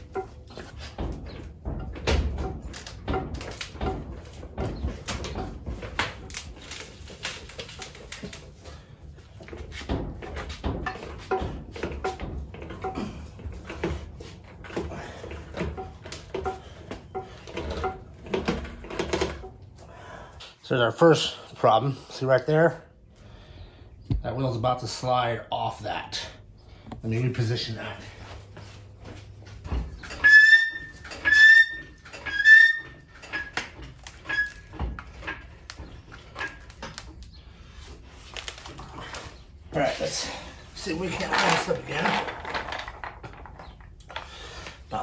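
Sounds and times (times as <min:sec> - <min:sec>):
furniture dolly casters creaking: 0:00.0 - 0:19.8, 0:27.2 - 0:45.0
low thumps: 0:24.0 - 0:24.4.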